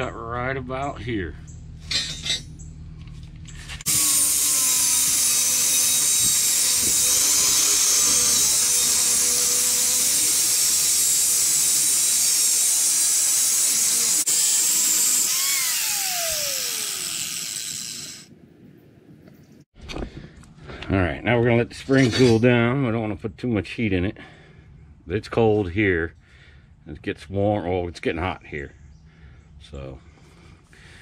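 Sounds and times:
angle grinder cutting steel: 3.8 - 18.3.

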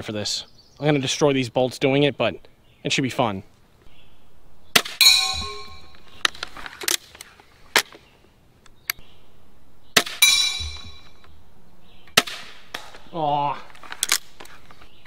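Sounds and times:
bolt clanging on steel plate: 4.8 - 6.5, 10.2 - 11.2
crossbow release crack: 12.1 - 13.1, 13.7 - 14.9.

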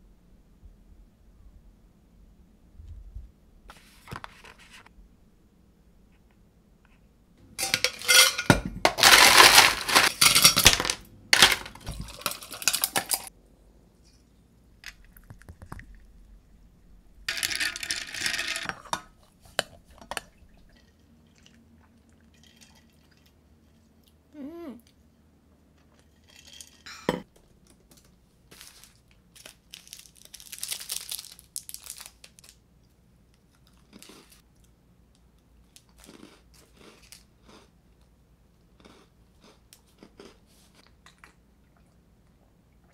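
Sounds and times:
packaging crinkling and rustling: 8.9 - 10.8, 27.9 - 32.6
plastic wrapper being opened: 28.5 - 32.6.

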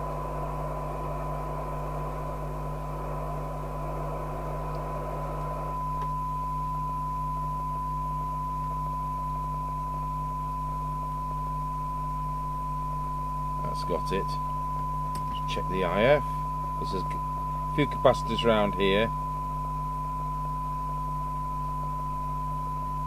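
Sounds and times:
low mains hum: 0.0 - 23.0
steady radio test tone: 0.0 - 23.0
radio hiss: 13.5 - 14.6, 15.2 - 19.2.

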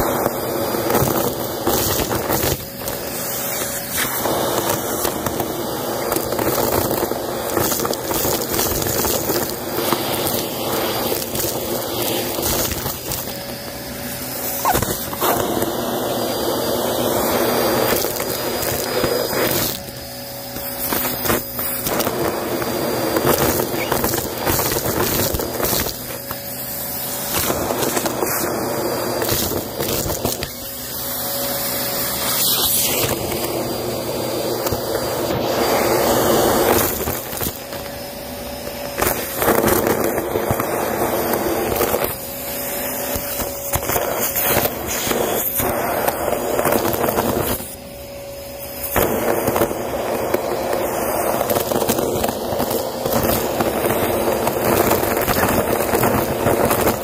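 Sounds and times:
debris crackling in vacuum: 0.0 - 57.0
vacuum cleaner running: 0.0 - 57.0.

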